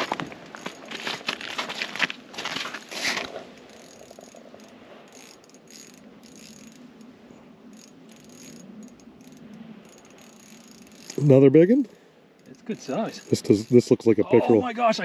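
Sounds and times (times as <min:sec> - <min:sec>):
fishing reel ticking whir: 0:03.6 - 0:11.5, 0:12.3 - 0:14.0.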